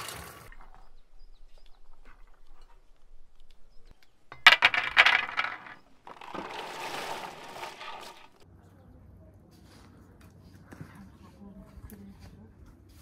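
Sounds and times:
rosehips clattering onto metal tray: 4.3 - 8.4
rosehips pouring into metal cauldron: 4.4 - 8.4.

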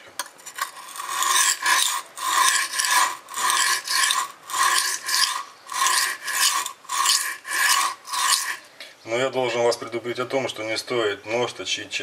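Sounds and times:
knife scraping on sharpening stone: 0.2 - 8.7.

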